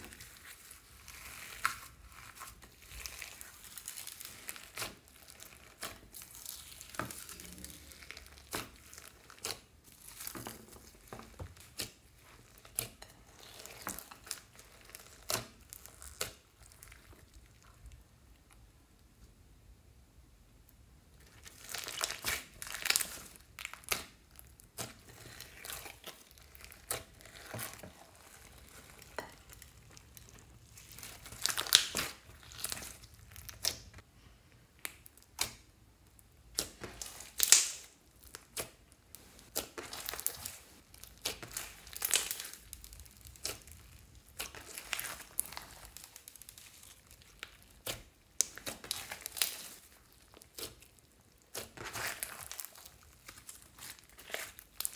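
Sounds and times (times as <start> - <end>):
slime crackling and popping: 0.0 - 18.0, 21.2 - 34.1, 34.7 - 54.9.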